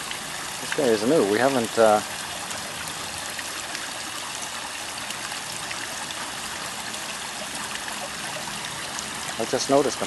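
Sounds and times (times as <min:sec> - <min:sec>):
water trickling in a pond: 0:00.0 - 0:10.0.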